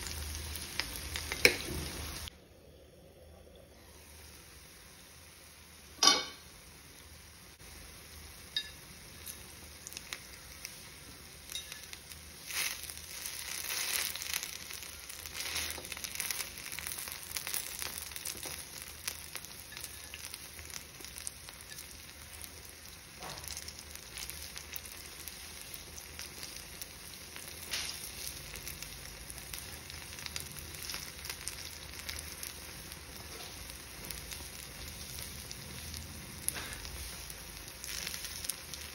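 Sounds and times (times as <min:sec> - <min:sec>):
batter sizzling in oil: 0:00.0 - 0:02.3, 0:03.4 - 0:38.9
sharp metallic clank: 0:06.0 - 0:06.5.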